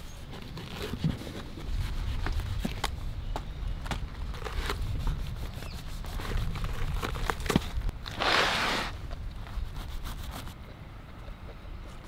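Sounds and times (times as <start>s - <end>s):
fruit fibres tearing and rustling: 4.0s - 9.6s.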